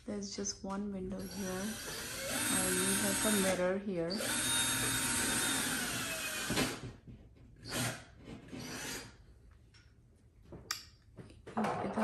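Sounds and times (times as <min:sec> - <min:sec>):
power drill whining into wall: 0:01.2 - 0:09.2.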